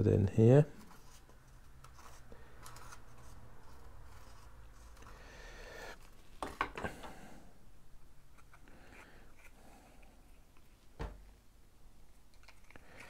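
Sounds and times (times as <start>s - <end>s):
foam parts rubbing and rustling: 0.7s - 5.1s.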